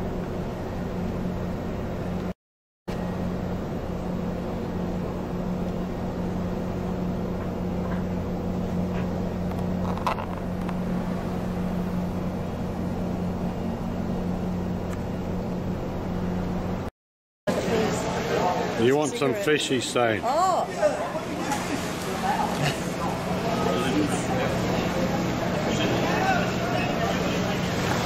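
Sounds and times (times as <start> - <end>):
low machinery hum: 0.0 - 2.3, 2.9 - 16.9, 17.5 - 28.0
wind and sea hiss: 9.2 - 14.8, 17.5 - 28.0.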